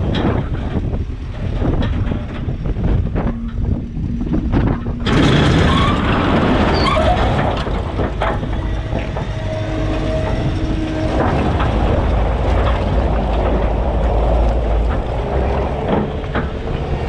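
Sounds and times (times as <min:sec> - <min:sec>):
diesel engine running under load: 0:00.0 - 0:17.0
logs clattering and scraping: 0:00.0 - 0:17.0
brief squealing tone: 0:04.9 - 0:07.4.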